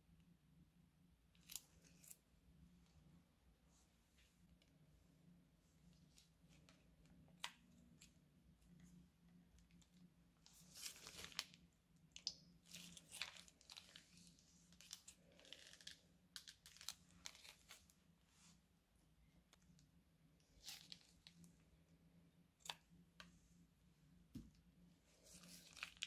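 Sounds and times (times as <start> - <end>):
plastic piping bag crinkling: 9.8 - 17.9, 25.2 - 26.0.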